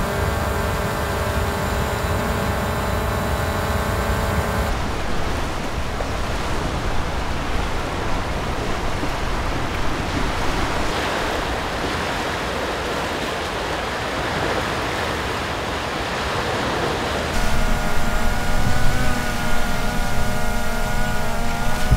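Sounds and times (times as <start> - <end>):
wind: 0.0 - 21.9
small waves washing onto shore: 4.6 - 21.9.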